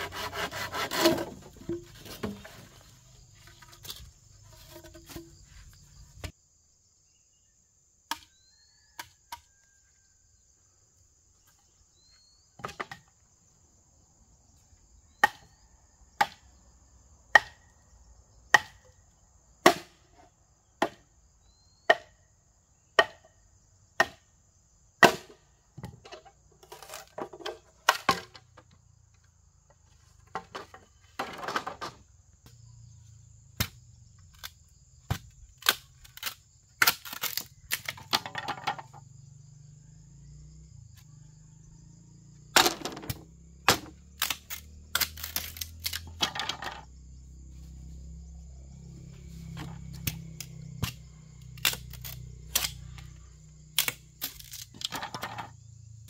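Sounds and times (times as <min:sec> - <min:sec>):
scraping or rustling: 0:00.0 - 0:06.3.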